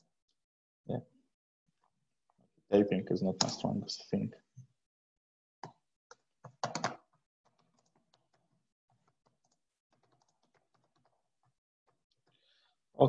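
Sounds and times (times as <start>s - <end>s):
typing on computer keyboard: 6.1s - 12.0s.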